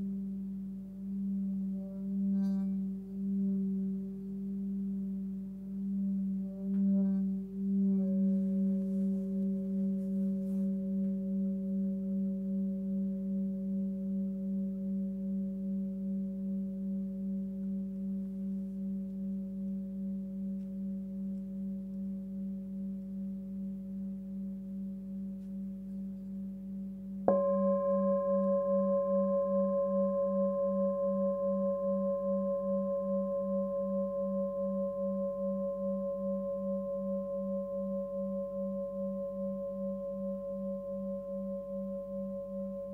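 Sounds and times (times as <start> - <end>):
singing bowl ringing: 5.8 - 42.9
singing bowl struck: 27.2 - 42.9.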